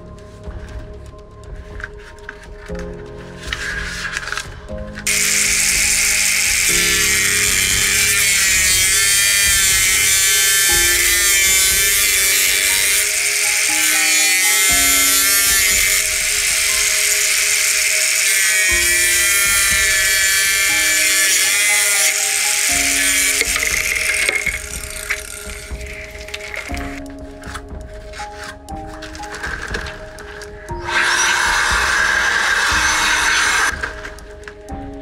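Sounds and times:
background music: 0.0 - 35.0
angle grinder cutting plastic pipe: 5.1 - 26.8, 30.8 - 33.9.

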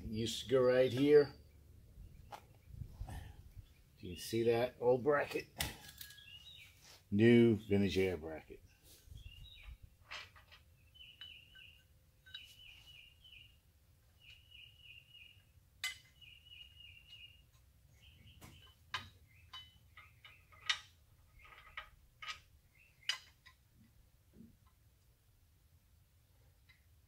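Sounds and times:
small bird chirping: 6.0 - 6.9, 9.0 - 10.0, 10.6 - 21.9, 22.6 - 23.5.

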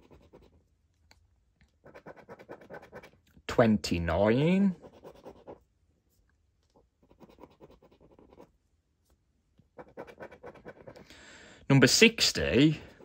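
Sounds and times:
scratchcard coating scratched off: 1.8 - 3.2, 9.8 - 11.0.

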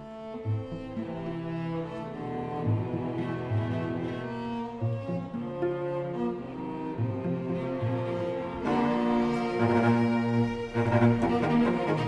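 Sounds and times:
cellos bowing sustained notes: 0.0 - 12.0.

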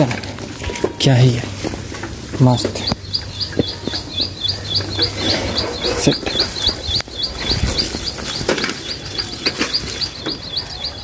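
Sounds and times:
bicycle rattling and knocking: 0.0 - 11.0
rapid high chirping: 2.4 - 11.0.

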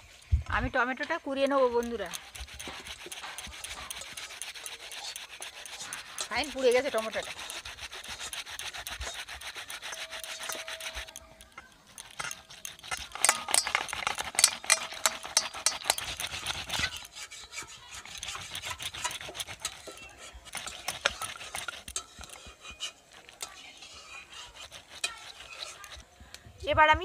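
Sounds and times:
tomato rasping on a grater: 1.4 - 26.3.

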